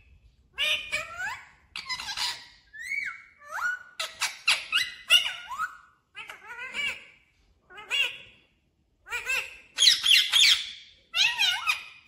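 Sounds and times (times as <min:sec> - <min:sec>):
parakeets squeaky calls: 0:00.6 - 0:07.1, 0:09.1 - 0:12.0.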